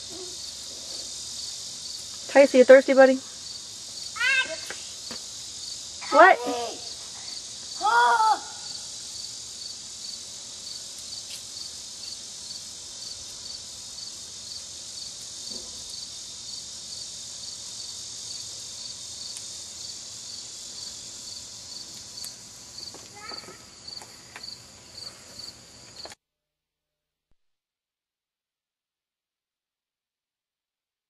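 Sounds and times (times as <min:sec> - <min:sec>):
high hiss: 0:00.0 - 0:26.1
crickets chirping: 0:00.0 - 0:26.2
child calling: 0:04.2 - 0:04.8, 0:07.8 - 0:08.8, 0:23.1 - 0:23.7.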